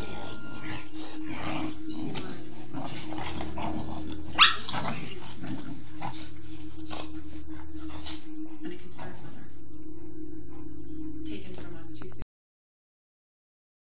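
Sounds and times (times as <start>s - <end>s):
puppies growling and scuffling: 0.0s - 11.7s
puppy sharp bark: 4.4s - 4.7s.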